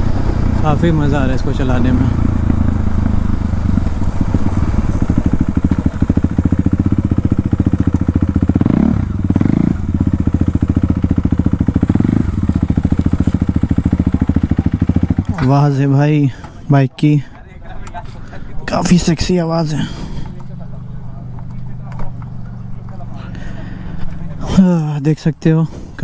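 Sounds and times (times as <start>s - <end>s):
motorcycle throttle blips: 0.0s - 15.6s, 19.6s - 24.4s
motorcycle engine pulsing: 0.0s - 15.9s, 18.8s - 24.6s.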